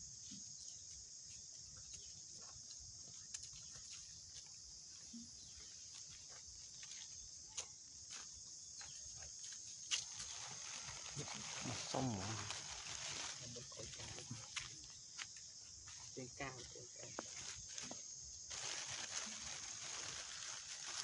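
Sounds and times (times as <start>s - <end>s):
insect drone: 0.0s - 21.0s.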